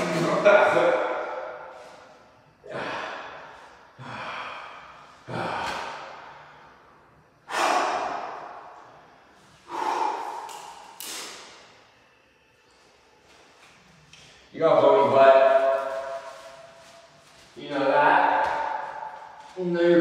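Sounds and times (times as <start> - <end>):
man exhaling forcefully: 7.4 - 8.7, 9.7 - 11.2.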